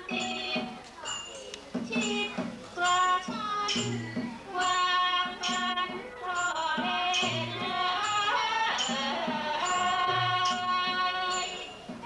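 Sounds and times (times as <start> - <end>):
sharp percussive strikes: 3.2 - 4.4, 7.2 - 8.2
deep drum strokes: 3.7 - 4.4.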